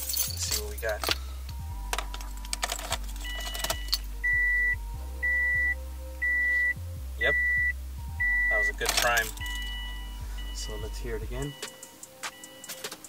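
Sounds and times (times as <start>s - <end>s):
keys jangling: 0.0s - 1.2s, 1.9s - 4.0s, 8.8s - 9.7s, 11.5s - 13.0s
car warning chime beeping: 3.2s - 13.0s.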